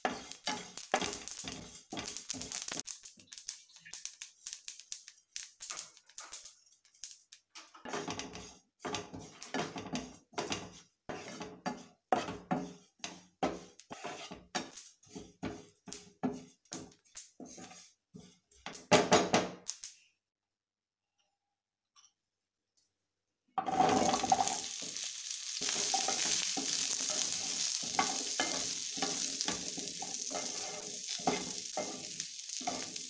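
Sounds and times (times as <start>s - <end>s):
spatula scraping frying pan: 0.0s - 4.0s, 7.8s - 18.6s, 23.6s - 33.0s.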